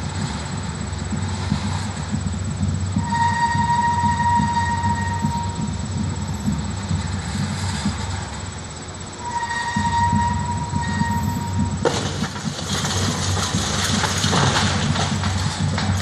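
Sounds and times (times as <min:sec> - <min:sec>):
crane diesel engine rumbling: 0:00.0 - 0:16.0
bricks crashing down: 0:11.8 - 0:16.0.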